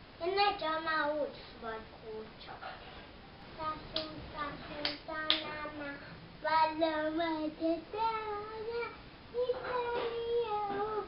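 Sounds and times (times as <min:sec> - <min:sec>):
young girl singing: 0:00.2 - 0:02.4, 0:03.6 - 0:11.0.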